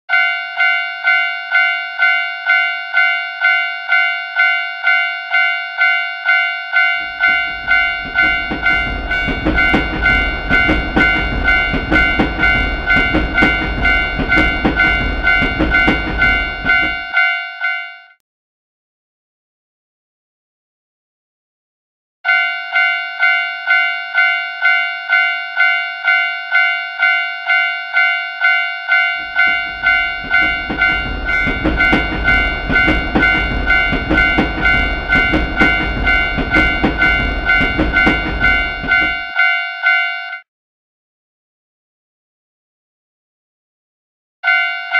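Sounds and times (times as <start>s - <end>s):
railroad crossing bell dinging: 0.1s - 18.2s, 22.3s - 40.5s, 44.4s - 44.9s
train rumble: 6.8s - 17.3s, 28.9s - 39.4s
wheel clacks over rail joints: 7.0s - 17.2s, 29.1s - 39.3s.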